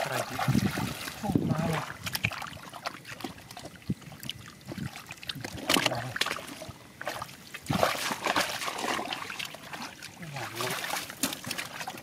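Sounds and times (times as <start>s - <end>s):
hands splashing in muddy water: 5.4s - 12.0s.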